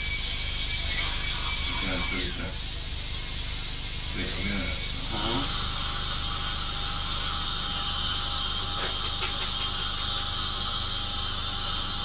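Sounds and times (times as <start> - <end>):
dental drill whining: 0.0 - 12.0
air and water spray hiss: 2.0 - 12.0.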